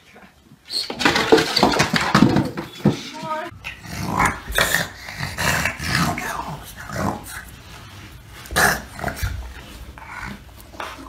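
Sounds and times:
dog growling and grunting: 0:03.6 - 0:07.5, 0:08.5 - 0:11.0.

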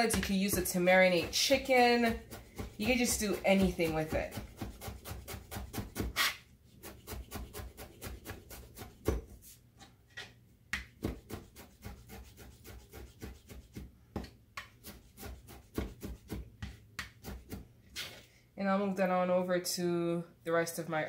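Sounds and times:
knife chopping on plastic board: 0:00.0 - 0:09.3, 0:10.7 - 0:17.7.

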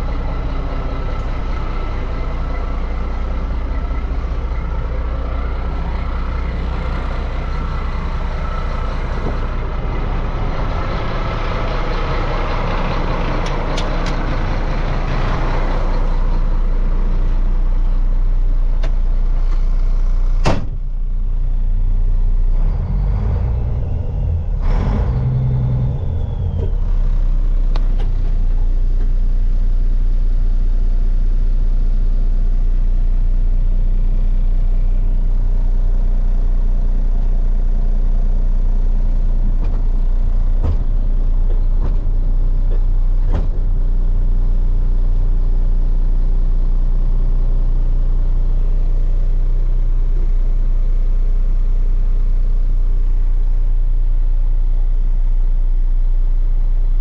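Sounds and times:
truck diesel engine idling: 0:00.0 - 0:57.0
sharp knock: 0:20.4 - 0:20.8
thumps and rattles: 0:40.5 - 0:43.6.

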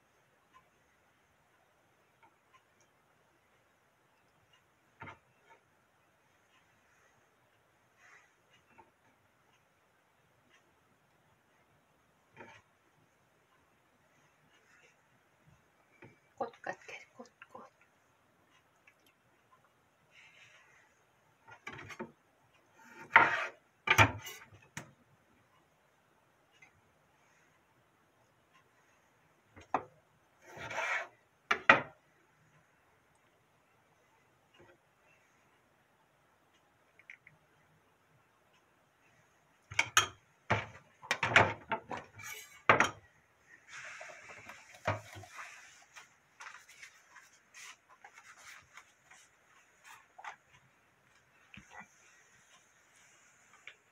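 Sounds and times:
kitchen objects knocking and clattering: 0:31.5 - 0:32.0, 0:39.7 - 0:43.1
soft rubbing of plate: 0:43.5 - 0:50.6
scraping and knocking handling noises: 0:43.8 - 0:50.4.

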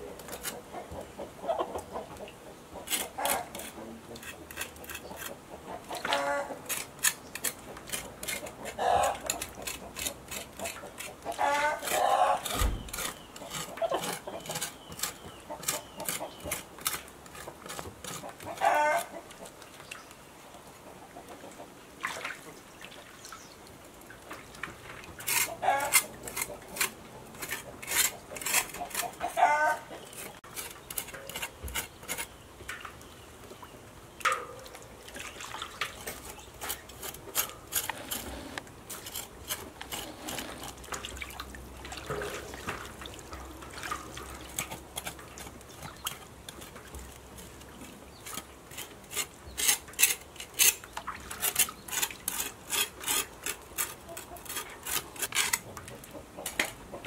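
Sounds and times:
chicken calling: 0:05.7 - 0:06.6, 0:08.7 - 0:09.3, 0:11.3 - 0:12.5, 0:18.4 - 0:19.2, 0:25.5 - 0:26.0, 0:28.8 - 0:30.4
cleaver scraping skin: 0:06.7 - 0:18.3, 0:25.3 - 0:29.1, 0:36.1 - 0:40.8, 0:51.4 - 0:55.6
water splashing: 0:22.0 - 0:25.8, 0:34.2 - 0:47.2.

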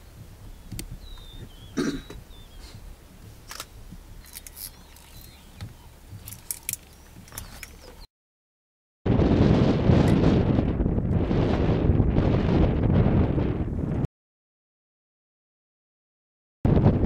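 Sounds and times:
faint bird chirps: 0:00.4 - 0:02.8, 0:04.1 - 0:06.0
cheetah huff: 0:01.6 - 0:02.9
clicks and crunches: 0:03.5 - 0:05.4, 0:06.2 - 0:08.0.

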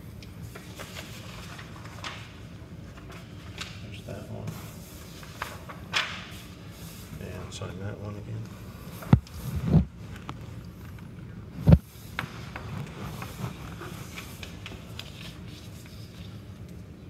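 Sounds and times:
papers scraping on counter: 0:11.7 - 0:16.4.

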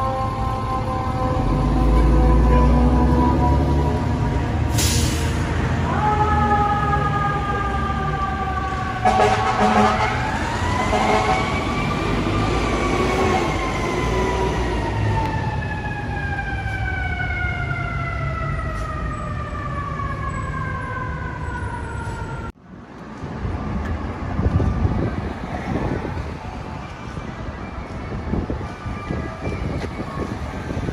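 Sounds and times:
fire engine air horn: 0:00.0 - 0:03.9, 0:04.7 - 0:07.9, 0:08.7 - 0:11.7
city traffic: 0:00.0 - 0:30.9.

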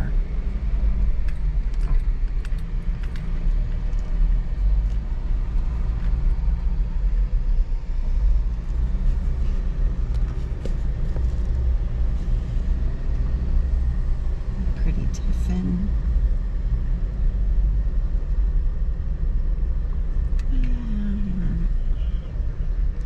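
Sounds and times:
car driving slowly: 0:00.0 - 0:23.0.

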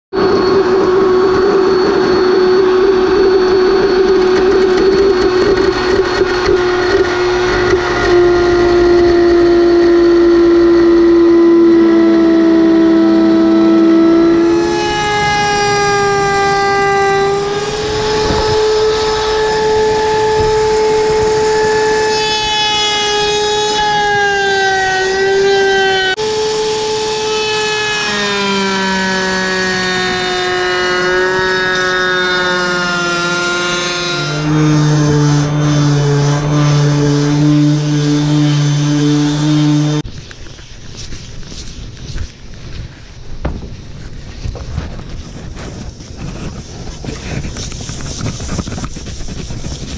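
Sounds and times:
band saw cutting wood: 0:00.2 - 0:40.1.

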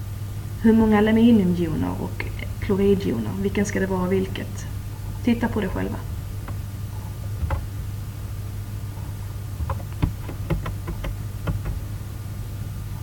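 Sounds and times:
low electrical hum: 0:00.0 - 0:13.0
computer mouse clicking: 0:06.4 - 0:07.8, 0:09.0 - 0:11.8.

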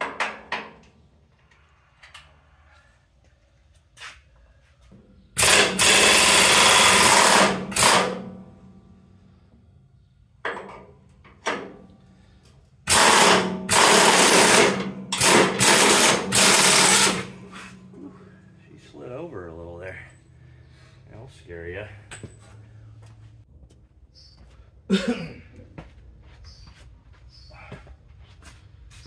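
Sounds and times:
impact wrench hammering: 0:05.4 - 0:08.4, 0:12.9 - 0:17.8.

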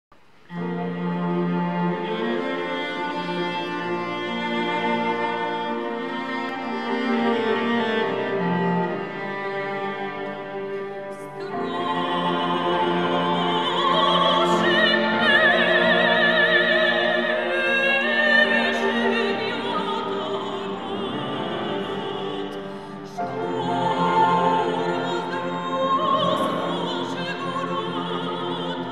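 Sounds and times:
cello: 0:00.4 - 0:28.9
piano: 0:00.5 - 0:28.9
soprano singing with vibrato: 0:11.0 - 0:28.9.

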